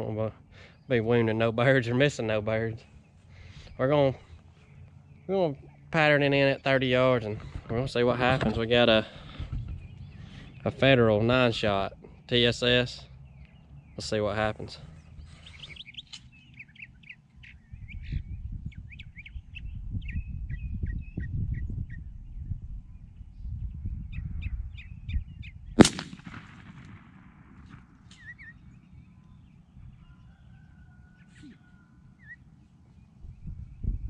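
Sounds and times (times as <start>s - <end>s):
shotgun shot: 25.8s - 28.4s.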